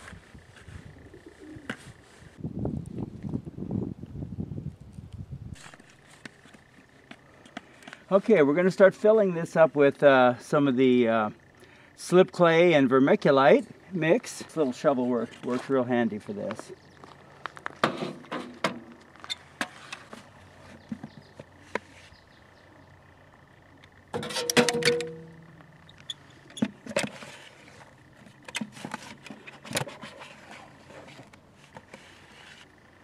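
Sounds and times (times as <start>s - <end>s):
shovel scraping in bucket: 24.2s - 25.2s.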